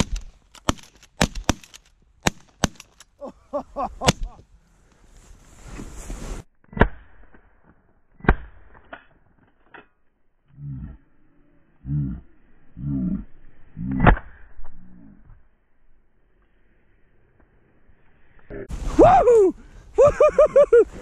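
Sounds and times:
shotgun shots: 0.0s - 3.0s.

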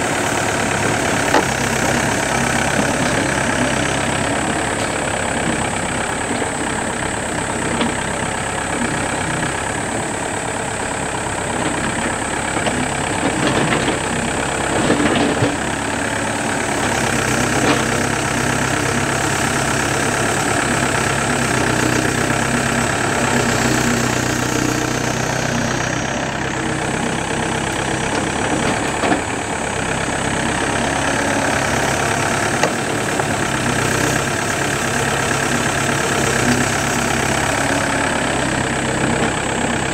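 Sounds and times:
excavator diesel engine running: 0.0s - 39.9s
digging knocks and clanks: 0.6s - 5.1s, 12.6s - 15.9s.

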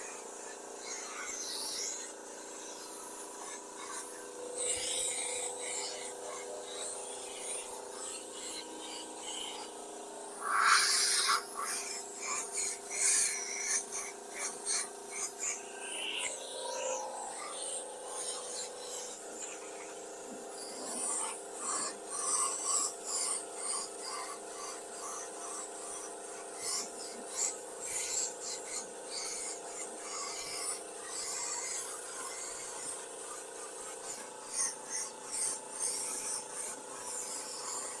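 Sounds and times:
steady hum: 0.0s - 24.4s
spray gun hissing in bursts: 0.0s - 38.0s.

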